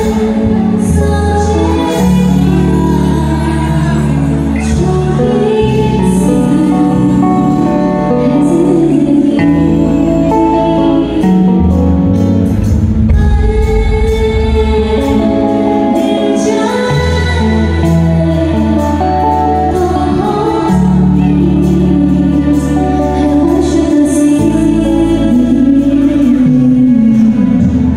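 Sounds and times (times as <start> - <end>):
woman singing: 0.0 - 12.4, 13.1 - 27.9
live band playing: 0.0 - 27.9
steady bass notes: 0.0 - 27.9.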